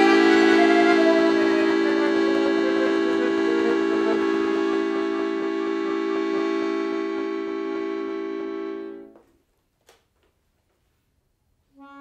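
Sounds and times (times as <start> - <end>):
accordion sustained chord: 0.0 - 9.2, 11.8 - 12.0.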